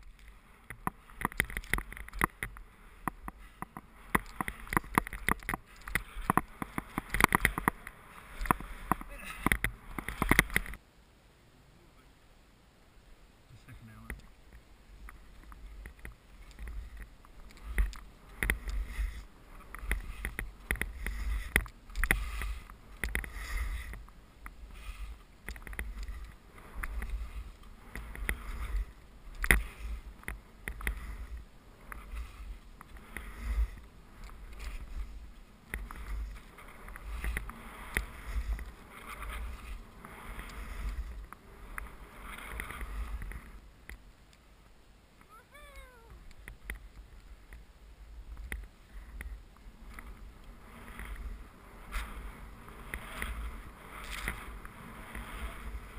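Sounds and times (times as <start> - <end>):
skis swishing through snow: 0.0 - 10.8, 13.6 - 44.4, 46.4 - 55.9
wind rumbling on microphone: 0.0 - 10.8, 13.0 - 55.9.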